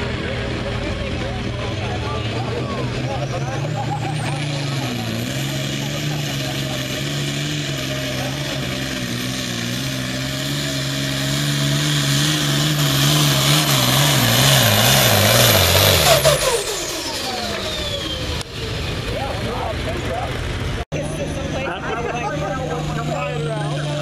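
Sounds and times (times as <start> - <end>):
diesel tractor engine at full load: 0.0 - 24.0
turbo whine winding down: 0.0 - 24.0.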